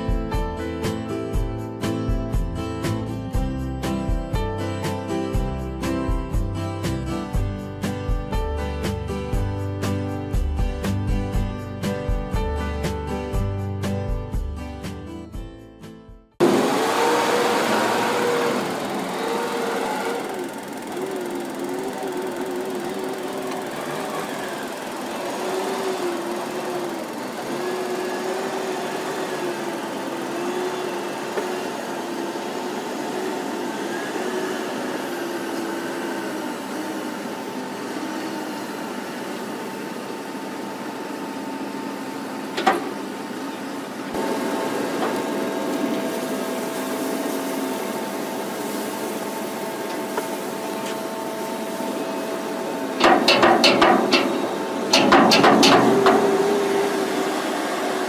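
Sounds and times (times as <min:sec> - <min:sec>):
telehandler engine running: 0:16.4 - 0:58.0
steady machine hum: 0:44.2 - 0:58.0
sharp knocks: 0:53.0 - 0:56.5.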